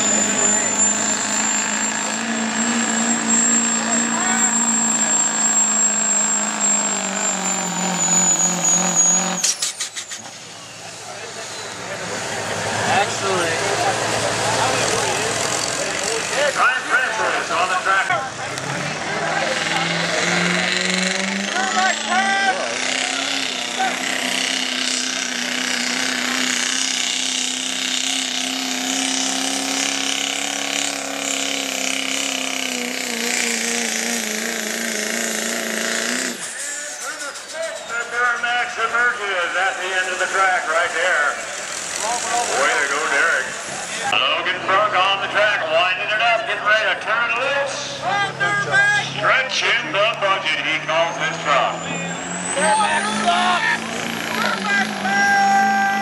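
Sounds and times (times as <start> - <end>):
turbo whistle: 0.0 - 10.8
diesel truck engine under load: 0.0 - 56.0.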